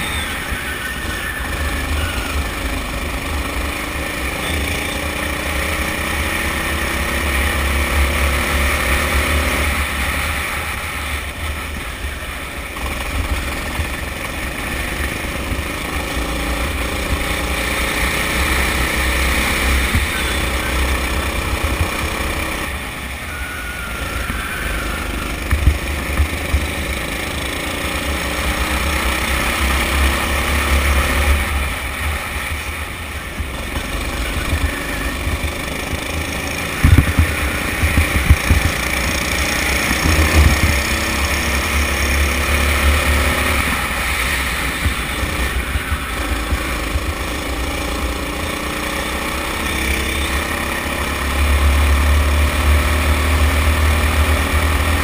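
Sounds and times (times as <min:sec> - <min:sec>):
kart engine revving: 0:00.0 - 0:55.0
wind rush on microphone: 0:36.7 - 0:38.8.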